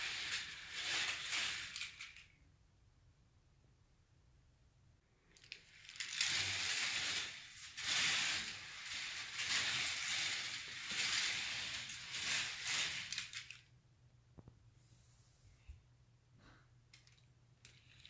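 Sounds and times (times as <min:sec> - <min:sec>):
toy coaster wheels rattling on track: 0:00.0 - 0:02.3, 0:05.4 - 0:13.6.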